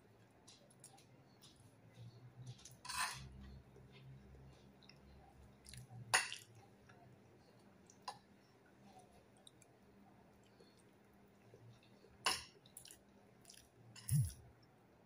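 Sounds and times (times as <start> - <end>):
faint chewing: 0.0 - 14.8
scrape on plate: 2.8 - 3.3.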